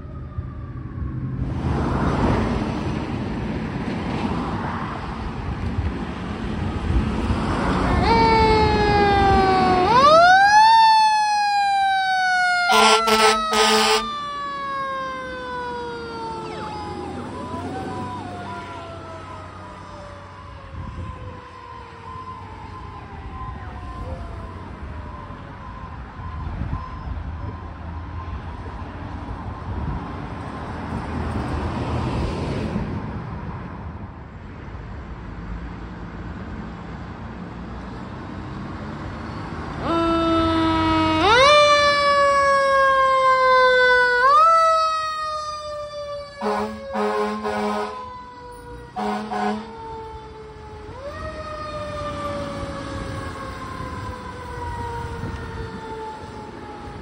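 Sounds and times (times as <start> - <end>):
fire engine siren: 0.0 - 30.0, 39.2 - 57.0
air horn blasts: 12.7 - 14.1, 46.4 - 48.1, 49.0 - 49.8.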